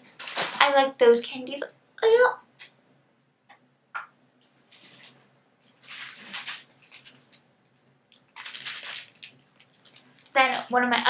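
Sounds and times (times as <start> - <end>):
packaging rustling and crinkling: 0.1 - 0.7, 4.7 - 11.0.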